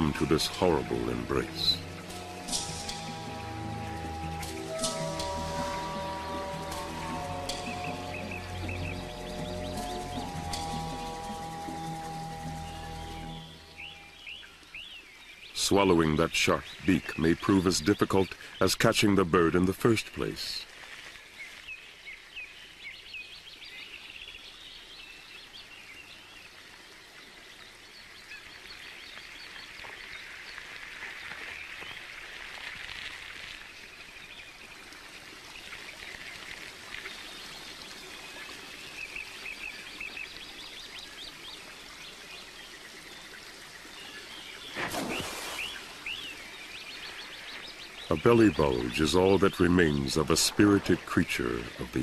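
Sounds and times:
birds chirping and calling: 0:00.0 - 0:20.2, 0:44.1 - 0:52.0.

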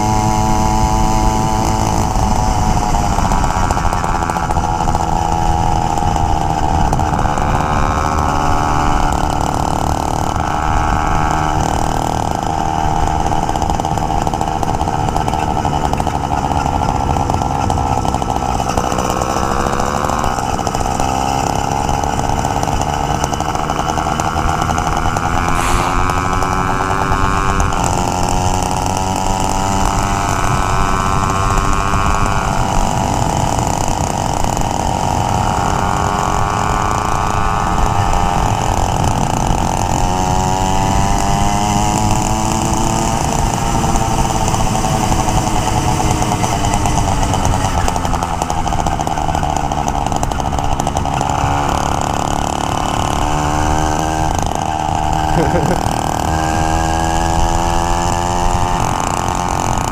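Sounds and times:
small single-cylinder engine running: 0:00.0 - 0:59.9
wind rushing over camera: 0:24.7 - 0:28.6.

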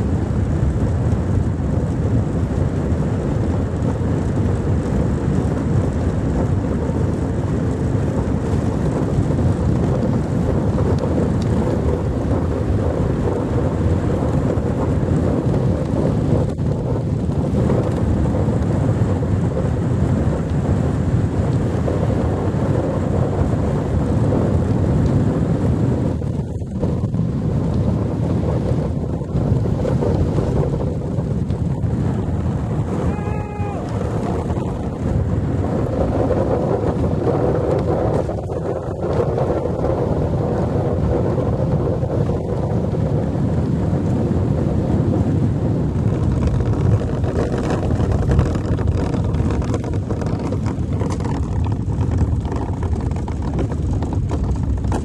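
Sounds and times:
wind buffeting microphone: 0:00.0 - 0:55.0
runners sliding over ice: 0:27.8 - 0:41.8, 0:45.7 - 0:55.0.

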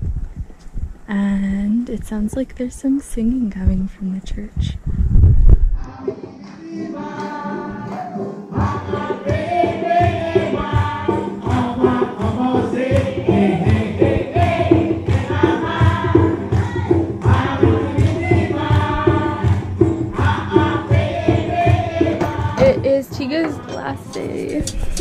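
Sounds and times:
even beat: 0:05.2 - 0:25.0
church choir singing: 0:05.8 - 0:22.8.

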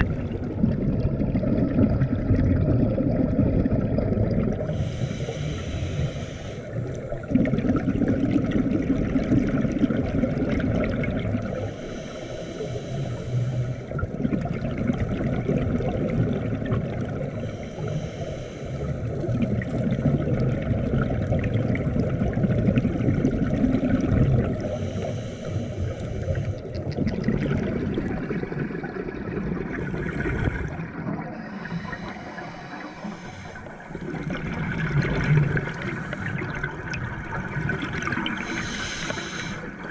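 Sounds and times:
exhaled air bubbling: 0:00.0 - 0:39.9
underwater rumble: 0:00.0 - 0:39.9
regulator hiss on inhale: 0:04.7 - 0:07.1, 0:11.4 - 0:14.0, 0:17.4 - 0:19.3, 0:24.6 - 0:26.8, 0:31.4 - 0:34.0, 0:38.4 - 0:39.9.

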